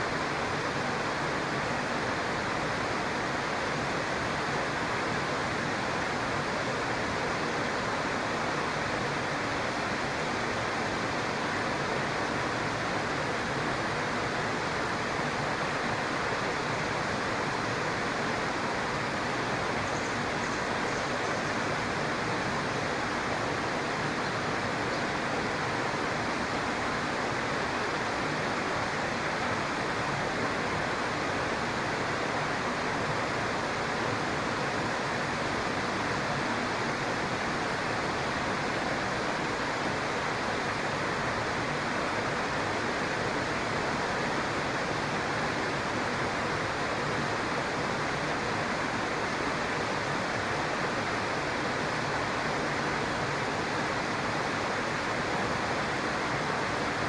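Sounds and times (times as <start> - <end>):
stream flowing: 0.0 - 57.0.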